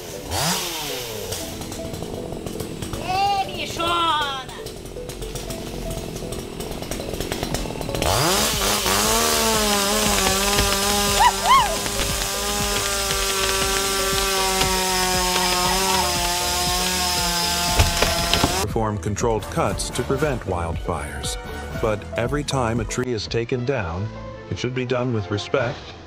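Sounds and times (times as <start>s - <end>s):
chainsaw cutting tree: 0.0s - 18.7s.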